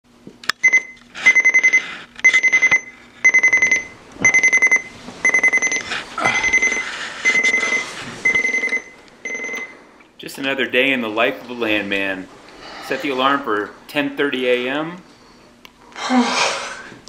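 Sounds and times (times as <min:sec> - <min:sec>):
alarm clock beeping: 0:00.6 - 0:09.8.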